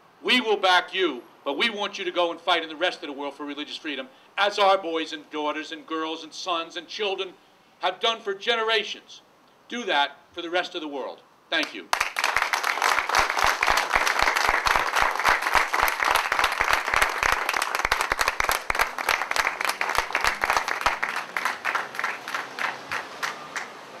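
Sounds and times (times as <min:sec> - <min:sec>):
crowd applauding: 0:11.9 - 0:24.0.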